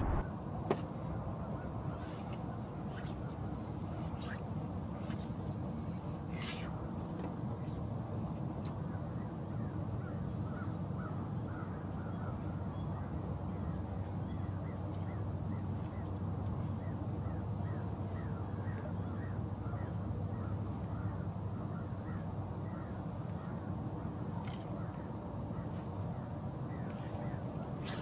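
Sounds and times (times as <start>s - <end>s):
low hum: 0.0s - 0.6s.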